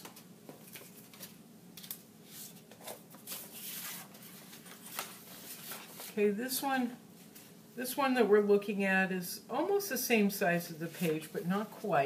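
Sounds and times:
paper rustling: 0.0s - 6.2s
paper being handled: 0.6s - 6.2s.

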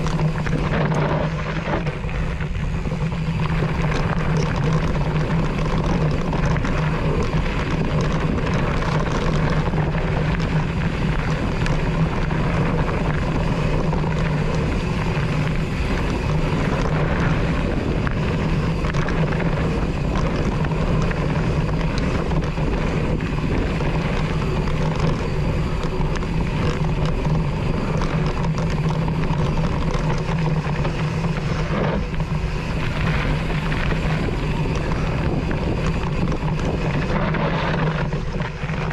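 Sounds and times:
bike tyres rushing on gravel: 0.0s - 38.9s
constant low hum: 0.0s - 38.9s.

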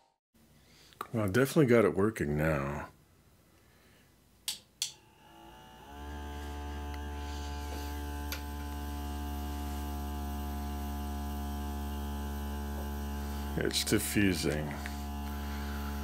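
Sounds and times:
air pump electric hum: 4.9s - 16.0s.

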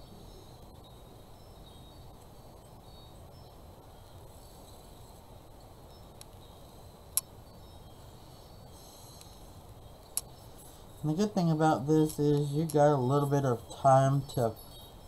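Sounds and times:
room hiss: 0.0s - 15.0s
faint tick: 9.2s - 9.4s.

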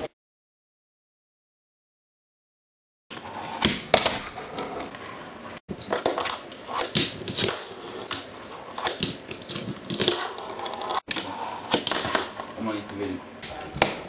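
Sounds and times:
small wheels rolling and scraping: 5.9s - 12.5s.

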